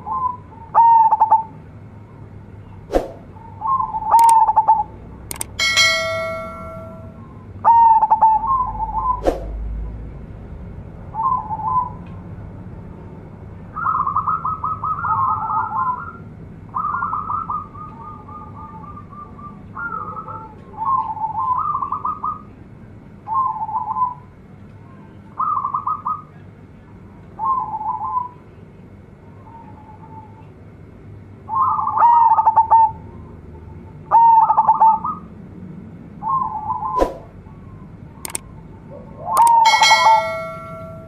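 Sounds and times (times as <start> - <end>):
dove cooing: 19.8 - 22.4.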